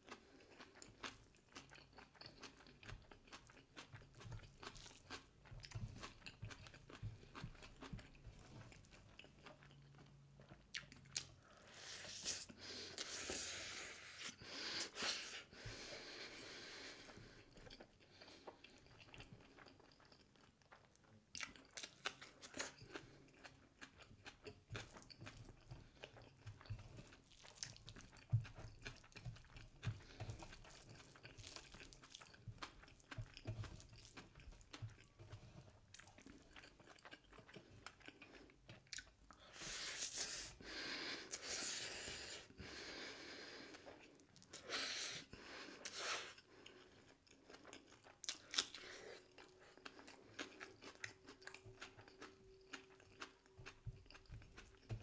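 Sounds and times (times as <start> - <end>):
wet chewing and lip smacks: 0.1 - 11.6, 17.4 - 39.5, 45.7 - 55.0.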